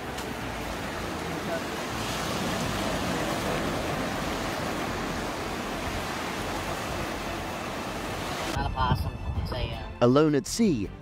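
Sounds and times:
ocean surf breaking: 0.0 - 8.6.

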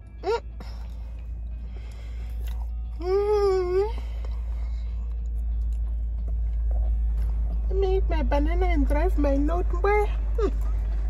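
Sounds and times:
car cabin drone: 0.0 - 11.0
woman humming: 3.0 - 4.1.

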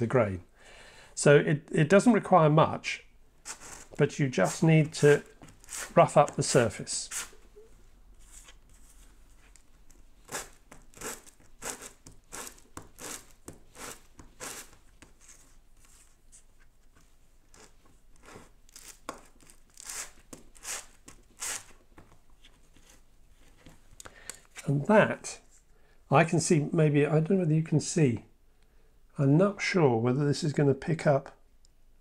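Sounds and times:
sanding sponge rasping on plastic: 3.5 - 7.3, 10.3 - 15.4.

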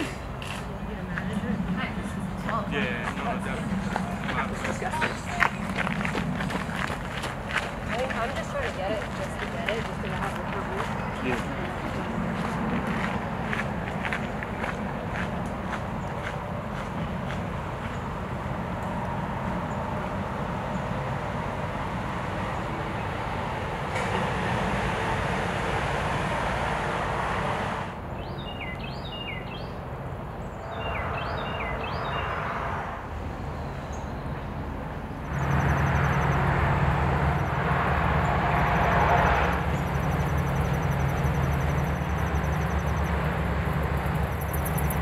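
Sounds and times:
low engine hum: 0.0 - 28.3, 32.8 - 45.0
distant vehicle rumble: 0.0 - 45.0
small bird chirping: 43.9 - 45.0.

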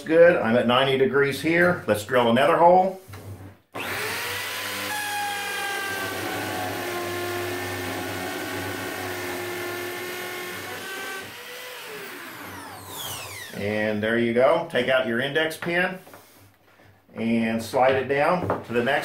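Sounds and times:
power drill boring wood: 3.7 - 13.6.

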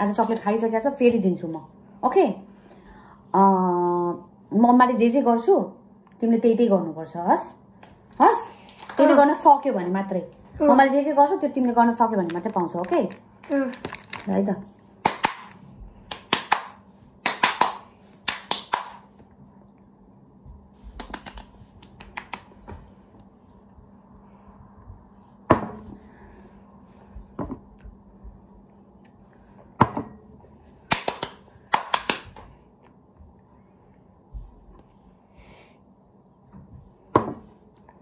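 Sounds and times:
faint hum: 0.0 - 38.0
sharp hand claps: 15.0 - 19.1, 21.0 - 22.5, 30.9 - 32.4.

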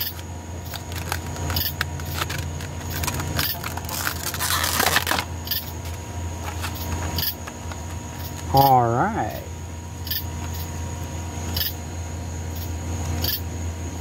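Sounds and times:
plastic packaging crinkling: 0.0 - 8.0
steady low hum: 0.0 - 14.0.

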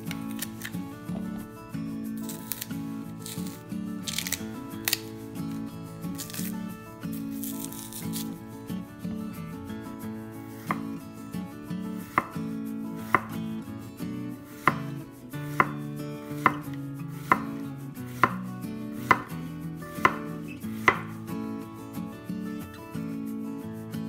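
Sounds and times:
knife slicing plantain: 0.0 - 1.5, 2.1 - 8.4, 10.6 - 11.0, 12.1 - 13.5, 14.5 - 19.3, 20.0 - 21.3
knife knocking on wooden board: 20.9 - 21.1.

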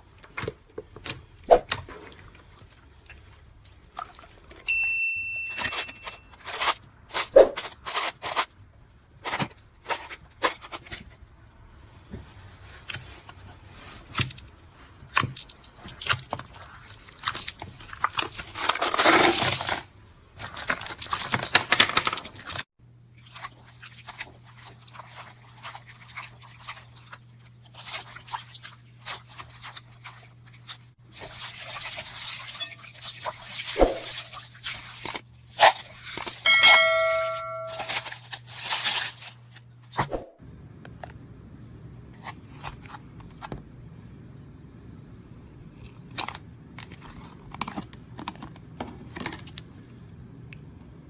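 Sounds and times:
beads crackling and crunching: 16.5 - 22.6
short electronic chime: 36.5 - 38.0.

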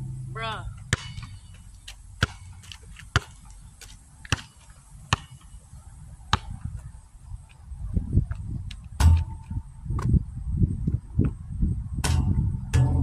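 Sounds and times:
basketball bouncing on asphalt: 0.0 - 7.6, 8.2 - 10.2.

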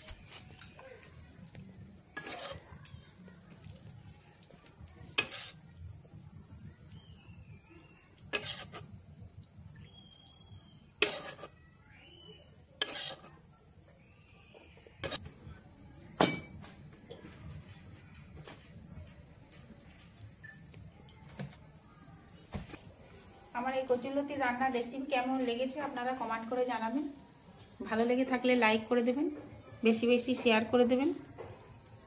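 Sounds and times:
faint insect chirring: 0.0 - 32.0.

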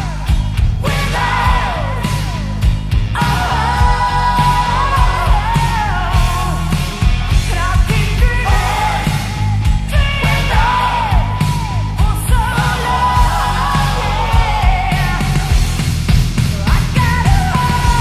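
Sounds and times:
bass guitar: 0.0 - 18.0
distorted electric guitars: 0.0 - 18.0
drum beat: 0.0 - 18.0
female singing: 16.7 - 18.0.

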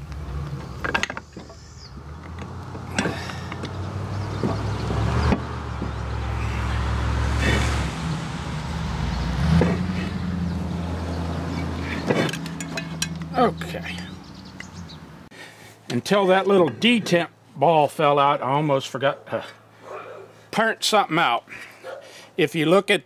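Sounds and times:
metal parts clinking and knocking: 0.6 - 1.6, 12.0 - 13.3
sharp metal hits: 12.1 - 13.3.

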